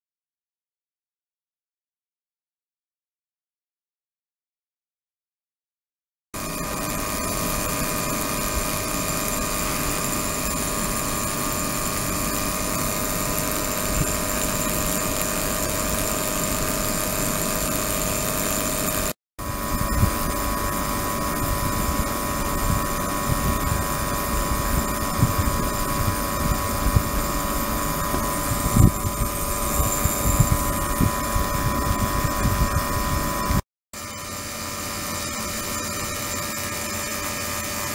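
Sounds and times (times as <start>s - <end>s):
ultrasonic tank droning hum: 6.4s - 33.6s.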